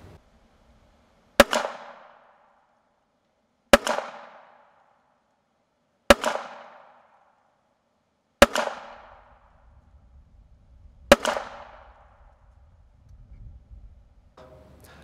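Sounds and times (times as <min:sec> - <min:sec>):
pistol shots: 0:01.4 - 0:02.8, 0:03.7 - 0:05.0, 0:06.1 - 0:07.5, 0:08.4 - 0:09.6, 0:11.1 - 0:12.4.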